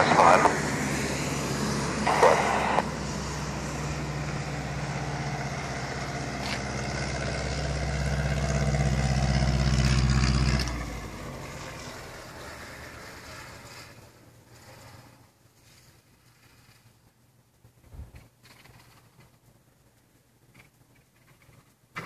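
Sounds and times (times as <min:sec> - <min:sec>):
engine running steadily: 0:00.0 - 0:15.2.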